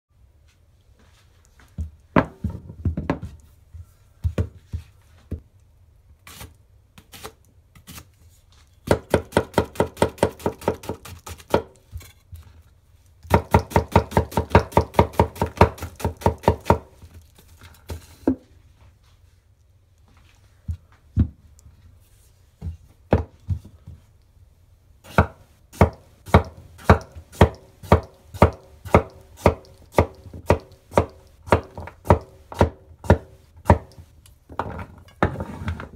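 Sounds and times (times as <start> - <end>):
knife chopping on wooden board: 8.9 - 11.7, 13.3 - 16.9, 25.1 - 34.0.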